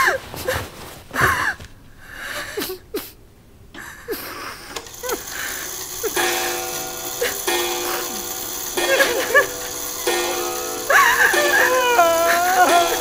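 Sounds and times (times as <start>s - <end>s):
woman sobbing: 2.2s - 3.1s, 3.8s - 13.0s
soft music: 6.0s - 13.0s.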